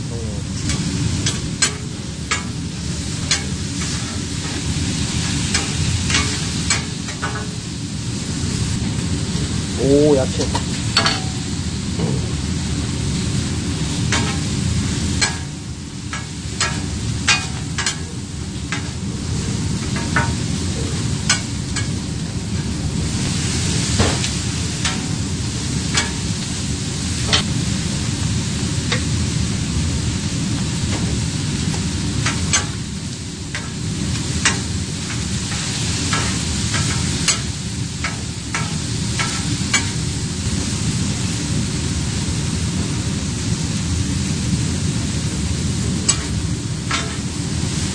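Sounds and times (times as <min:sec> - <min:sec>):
food sizzling on a griddle: 0:00.4 - 0:47.9
metal spatulas scraping and clacking: 0:16.2 - 0:18.0.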